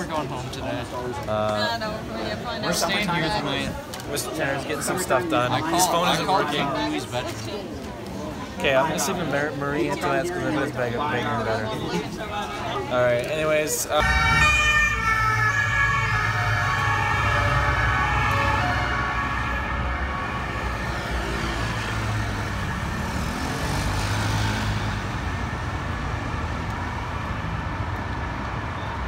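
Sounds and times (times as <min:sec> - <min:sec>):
traffic rumble: 0:00.0 - 0:29.0
emergency vehicle siren: 0:13.9 - 0:27.3.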